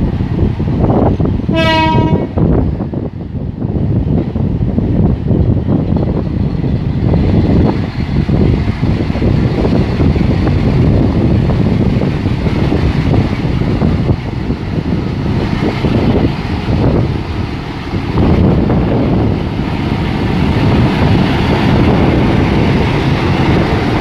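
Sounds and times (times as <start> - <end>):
diesel locomotive engine rumble: 0.0 - 24.0
wind noise on microphone: 0.0 - 24.0.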